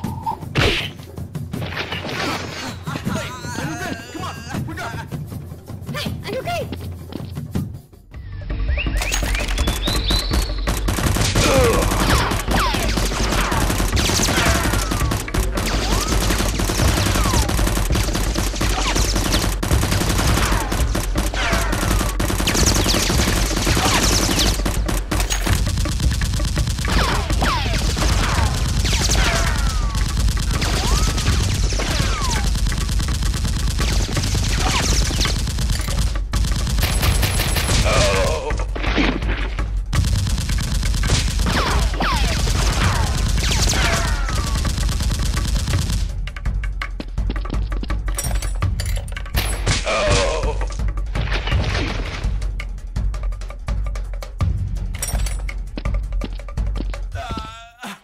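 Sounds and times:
falling whistles: 8.2 - 10.7
rapid automatic gunfire: 9.5 - 38.3, 39.9 - 46.2.

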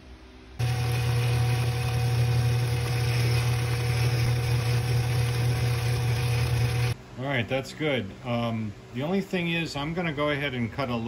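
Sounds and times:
lathe electric motor humming: 0.6 - 7.0.

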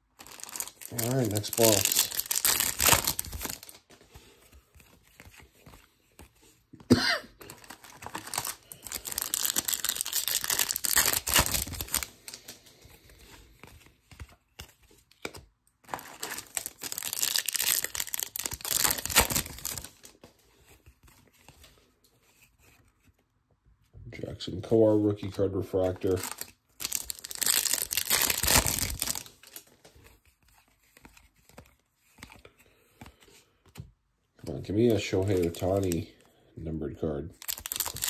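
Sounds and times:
foil wrapper crinkling and tearing: 0.0 - 3.9, 7.4 - 12.8, 15.2 - 20.2, 25.9 - 29.7, 34.5 - 36.1, 37.3 - 38.0
cards being flipped through: 0.2 - 6.8, 7.4 - 23.2, 25.2 - 36.1.

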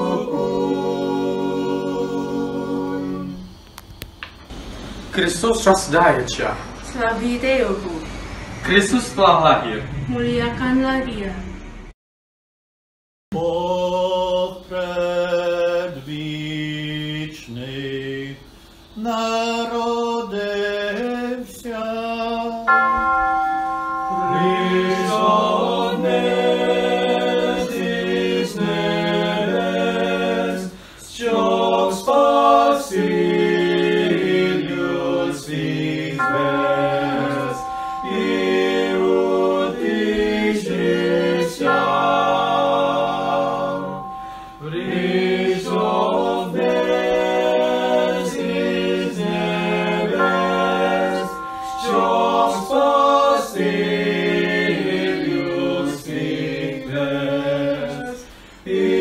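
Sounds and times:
choir singing in harmony: 0.0 - 3.7, 13.3 - 59.0.

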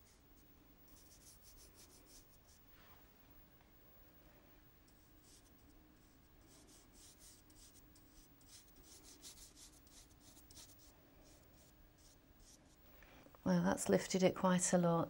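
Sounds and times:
paintbrush swishing on paper: 4.9 - 12.8.

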